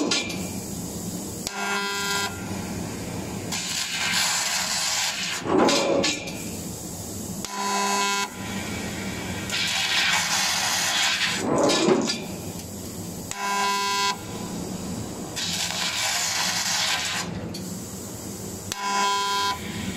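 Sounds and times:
laser cutter hissing: 0.0s - 5.4s, 6.1s - 11.4s, 12.2s - 19.9s
machine buzz: 1.5s - 2.5s, 18.7s - 19.6s.

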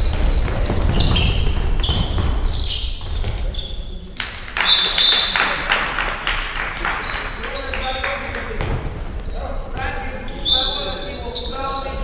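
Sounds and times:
handball bouncing: 0.0s - 3.6s, 7.0s - 8.9s.

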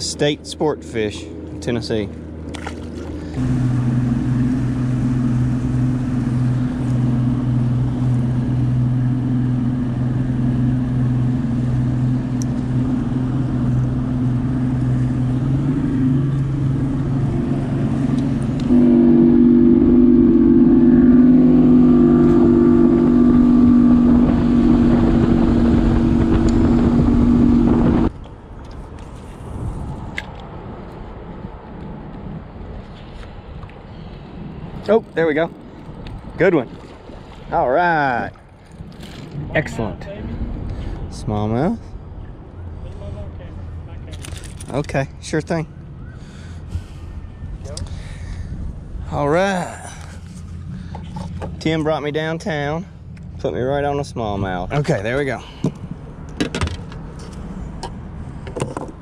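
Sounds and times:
outboard motor running: 0.0s - 28.1s, 34.8s - 41.5s, 43.5s - 57.4s.

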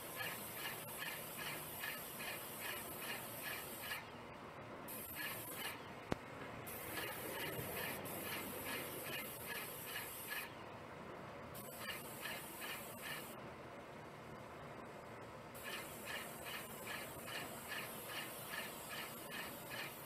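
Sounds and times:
paint sprayer hissing: 0.0s - 4.1s, 4.9s - 5.9s, 6.7s - 10.6s, 11.6s - 13.4s, 15.6s - 20.0s
rhythmic squeak: 0.1s - 4.1s, 6.9s - 10.6s, 11.7s - 13.4s, 15.6s - 20.0s.

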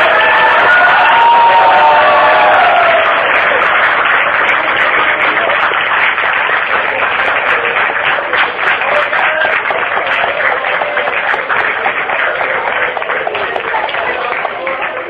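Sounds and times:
crowd of students talking: 0.0s - 15.0s.

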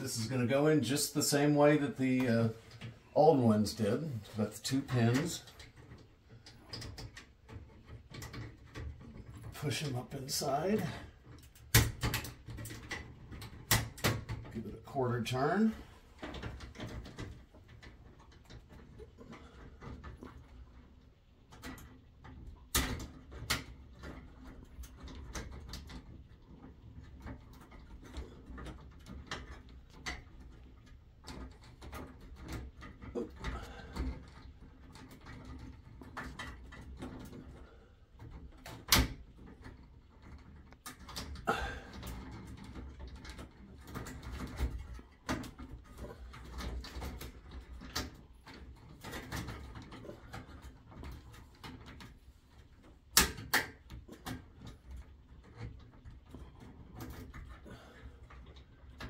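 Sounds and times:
pins scraping and clicking in sockets: 0.2s - 59.0s.

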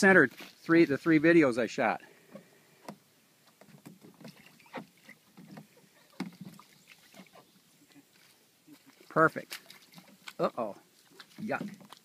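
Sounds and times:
water splashes: 2.2s - 12.0s
paddle and hull knocks: 2.3s - 7.5s, 11.2s - 12.0s.

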